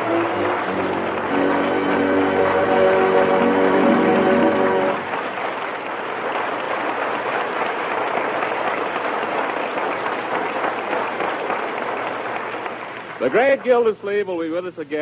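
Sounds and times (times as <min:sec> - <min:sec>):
music chord: 0:00.0 - 0:05.2
audience applauding: 0:00.0 - 0:15.0.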